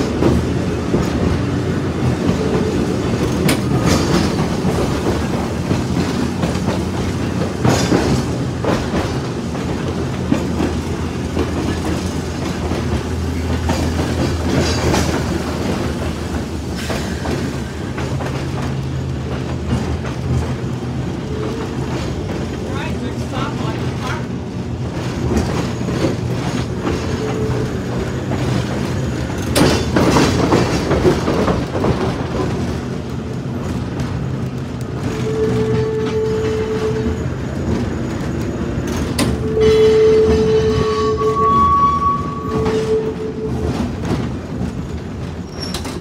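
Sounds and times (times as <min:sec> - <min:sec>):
sharp clicks from rails: 0:00.0 - 0:41.3, 0:42.0 - 0:46.0
streetcar wheels rumbling: 0:00.0 - 0:46.0.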